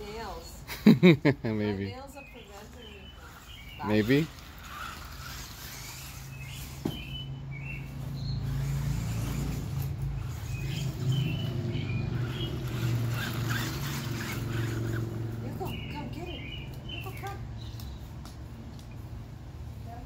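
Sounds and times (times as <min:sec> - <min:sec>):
birds chirping: 0:00.0 - 0:20.0
low motor hum: 0:02.4 - 0:18.2.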